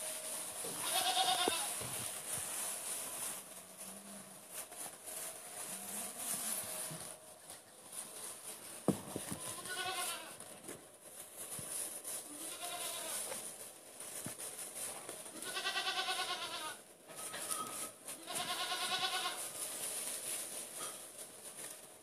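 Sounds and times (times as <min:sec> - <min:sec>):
goat kid bleating: 0:00.6 - 0:01.8, 0:09.4 - 0:10.4, 0:12.3 - 0:13.3, 0:15.3 - 0:16.8, 0:18.2 - 0:19.5.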